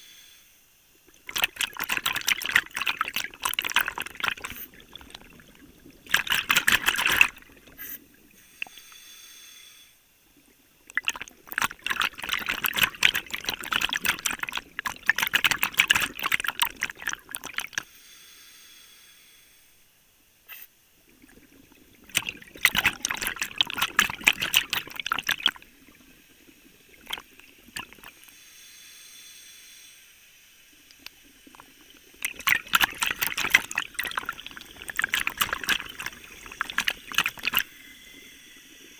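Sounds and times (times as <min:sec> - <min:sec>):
exhaust bubbles crackling: 0:01.1 - 0:08.3, 0:10.4 - 0:17.8, 0:21.0 - 0:28.2, 0:30.8 - 0:38.9.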